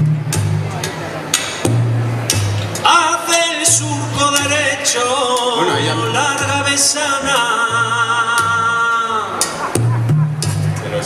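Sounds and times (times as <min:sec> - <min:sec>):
stepping bass line: 0:00.0 - 0:02.9, 0:05.4 - 0:11.0
folk band playing: 0:00.0 - 0:11.0.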